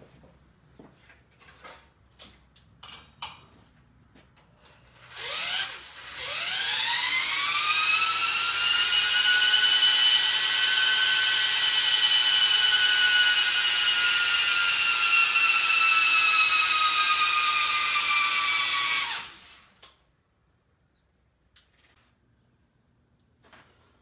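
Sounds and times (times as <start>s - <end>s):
power drill whining: 4.6s - 20.0s.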